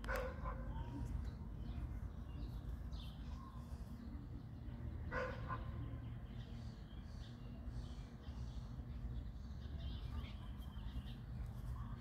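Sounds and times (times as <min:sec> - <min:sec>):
dog barking: 0:00.0 - 0:00.8, 0:05.1 - 0:05.8.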